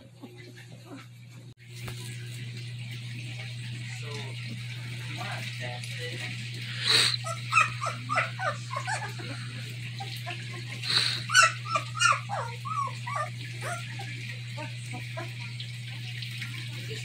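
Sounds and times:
puppies whimpering and squeaking: 6.6s - 15.6s.

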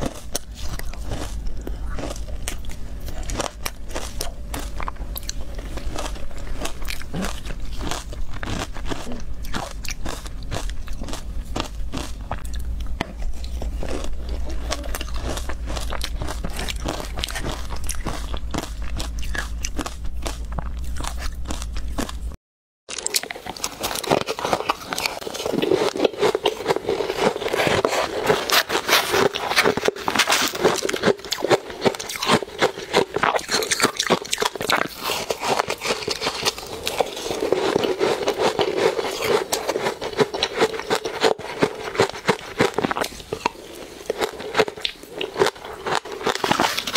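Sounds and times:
crunching and chewing ice: 0.0s - 46.9s.

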